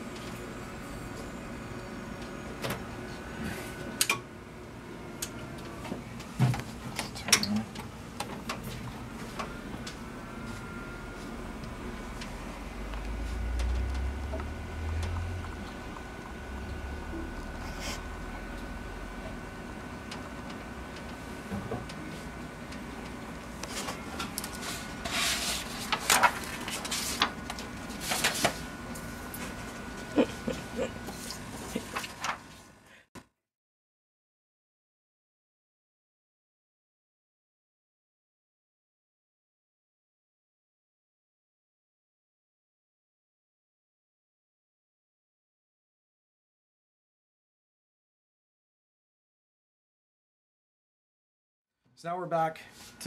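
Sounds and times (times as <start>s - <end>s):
printer humming: 0.0s - 32.8s.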